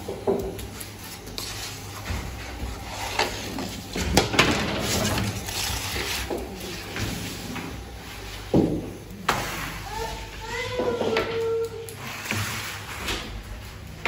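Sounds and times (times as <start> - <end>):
bakery clatter and knocks: 0.0 - 0.9, 1.9 - 9.6, 10.7 - 11.5.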